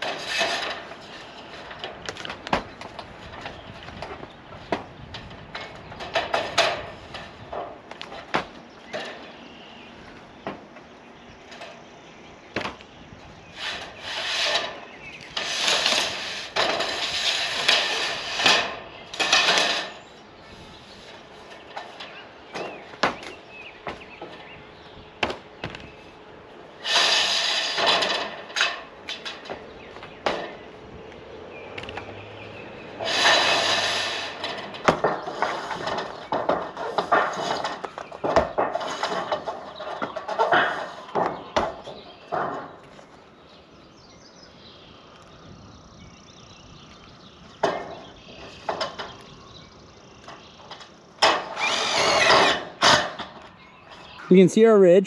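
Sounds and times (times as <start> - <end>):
knocks on metal panels: 0.0 - 9.3, 12.5 - 12.8, 21.6 - 24.4, 25.2 - 25.9, 27.0 - 30.7, 33.0 - 42.9, 47.6 - 49.2
screw gun driving screws: 51.2 - 53.1.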